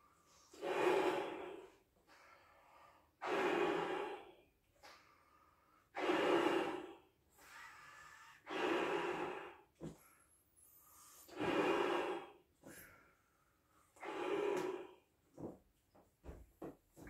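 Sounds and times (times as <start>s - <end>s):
in-breaths: 0.0s - 15.1s
man blowing up balloon: 0.3s - 5.0s, 5.8s - 10.0s, 10.8s - 12.9s, 13.9s - 15.1s.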